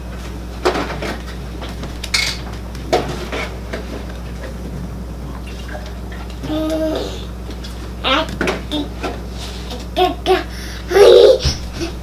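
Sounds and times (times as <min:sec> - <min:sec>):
steady low hum: 0:00.0 - 0:12.0
dishes clinking and knocking: 0:02.1 - 0:03.5.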